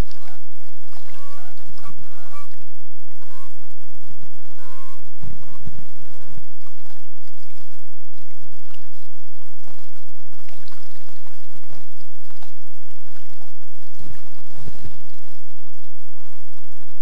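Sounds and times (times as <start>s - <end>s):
paddle splashing in water: 0.0s - 2.7s, 6.4s - 15.2s
water sloshing: 0.0s - 3.7s, 4.4s - 15.4s.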